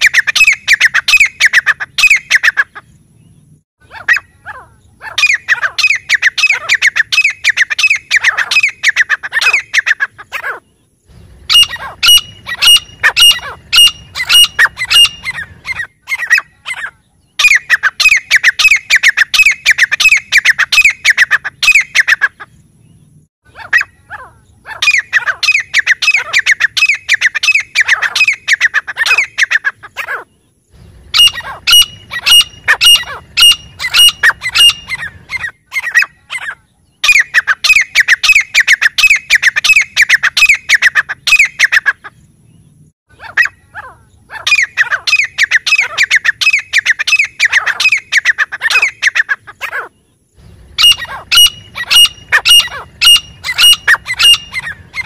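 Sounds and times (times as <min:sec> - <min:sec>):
francolin calling: 0:00.0 - 0:55.0.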